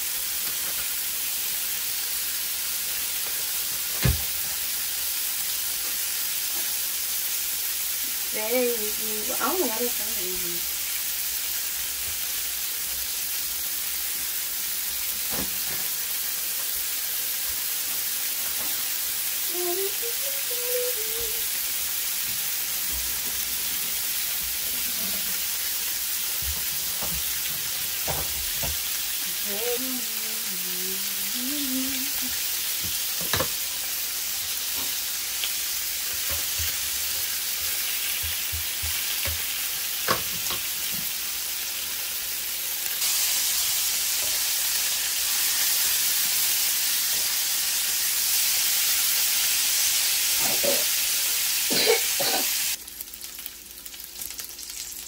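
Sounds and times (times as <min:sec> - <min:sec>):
bacon sizzling on a griddle: 0:00.0 - 0:55.0.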